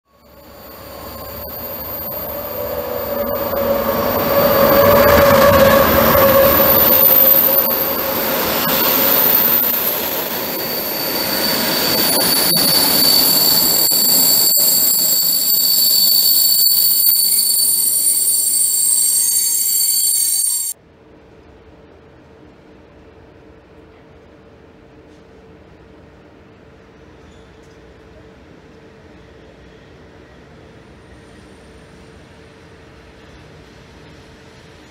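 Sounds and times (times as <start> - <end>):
high-pitched wheel squeal: 0.1 - 20.8
train passing: 0.1 - 20.8.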